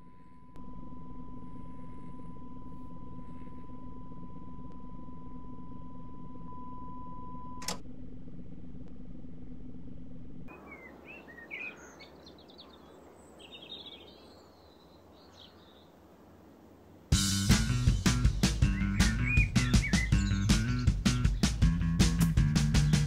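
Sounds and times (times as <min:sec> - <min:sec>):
birds chirping: 0:10.5 - 0:23.0.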